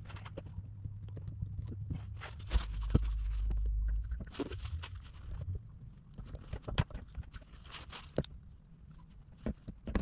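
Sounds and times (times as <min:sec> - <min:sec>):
low steady hum: 0:00.0 - 0:10.0
tapping and scraping on plastic tank: 0:09.3 - 0:10.0.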